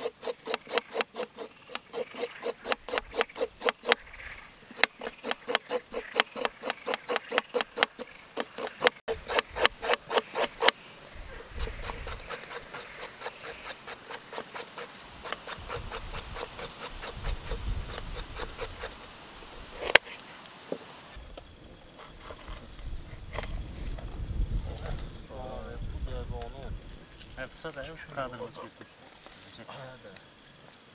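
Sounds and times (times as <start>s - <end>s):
knife scraping carrot on board: 0.0s - 4.0s, 4.7s - 10.8s, 11.6s - 19.1s.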